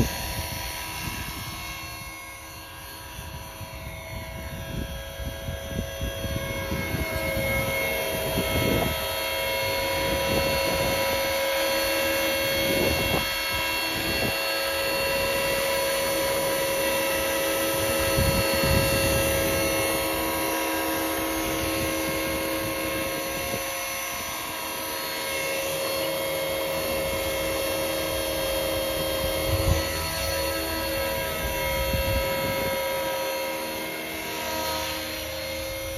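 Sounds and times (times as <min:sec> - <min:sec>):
low buffeting gusts: 0:00.0 - 0:11.4, 0:17.2 - 0:24.3, 0:26.6 - 0:35.9
rc helicopter motor whine: 0:00.0 - 0:35.9
rotor blades rushing: 0:00.0 - 0:35.9.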